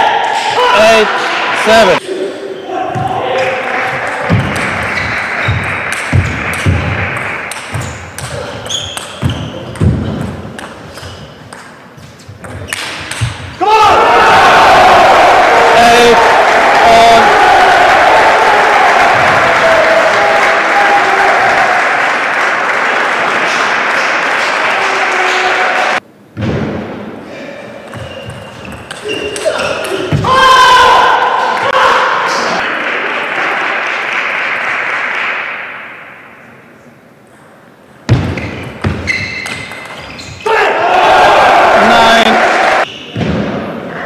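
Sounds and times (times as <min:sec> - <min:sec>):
spectators applauding: 0:03.3 - 0:07.5, 0:15.7 - 0:26.0, 0:32.6 - 0:35.8.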